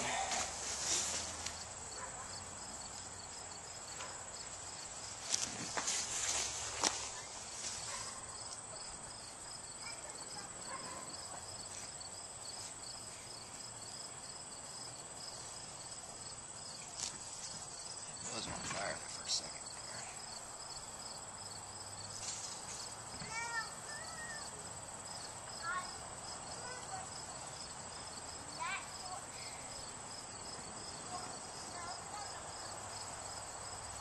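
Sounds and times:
breathy rush: 0.0s - 1.1s
insects trilling: 0.0s - 34.0s
pulsing insect chirp: 1.4s - 34.0s.

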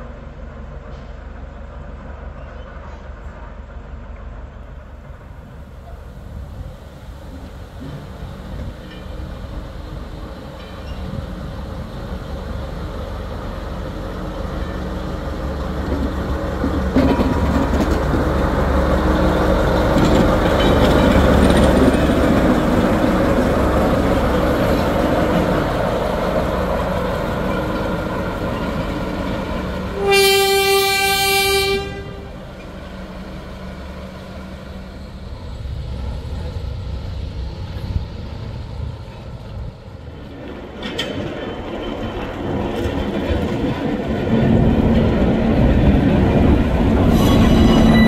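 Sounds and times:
train rumbling: 0.0s - 48.0s
train horn: 29.9s - 32.5s.

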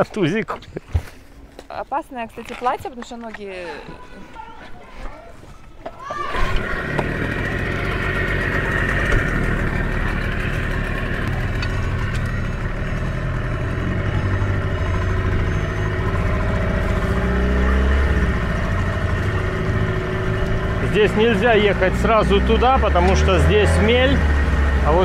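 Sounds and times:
outboard motor running: 6.1s - 25.0s.

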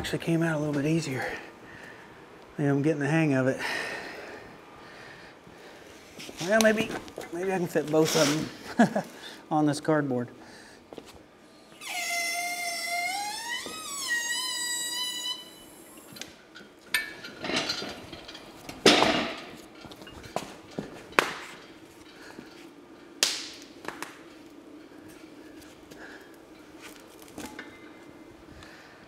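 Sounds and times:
heavy metal parts clanking: 16.2s - 22.6s.

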